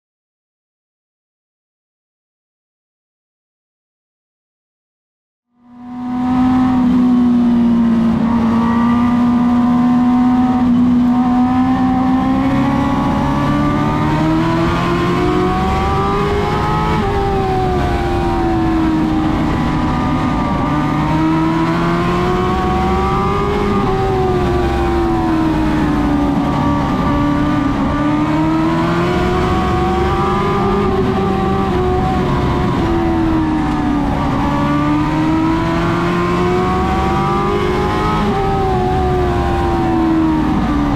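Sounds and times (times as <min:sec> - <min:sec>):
race car engine running hard: 0:05.7 - 0:40.9.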